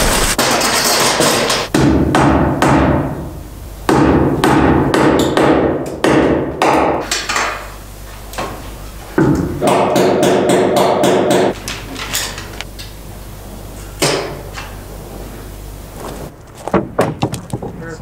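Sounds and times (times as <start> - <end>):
hammer blows on wood framing: 0.0 - 3.2, 3.9 - 7.5, 9.2 - 11.6.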